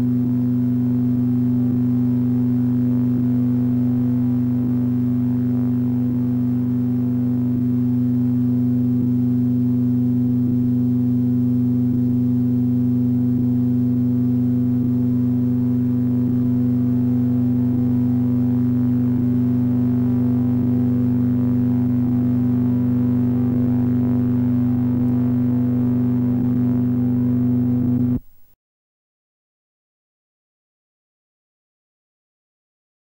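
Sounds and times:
low synthesizer drone: 0.0s - 28.2s.

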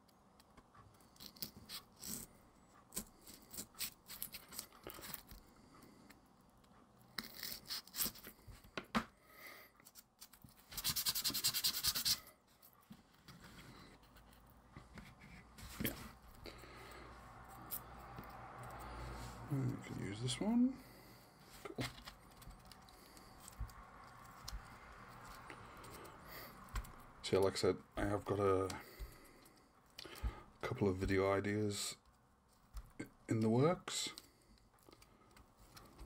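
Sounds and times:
fast even rasp: 10.6s - 12.3s.

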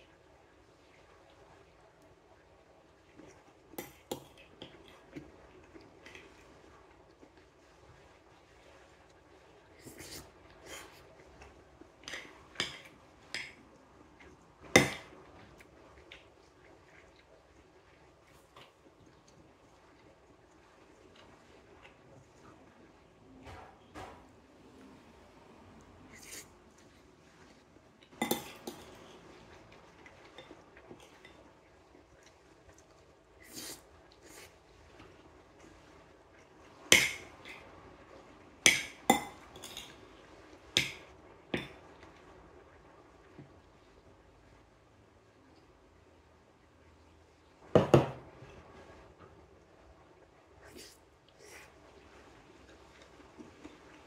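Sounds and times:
metal spoon clinking on ceramic bowl: 28.2s - 28.9s.

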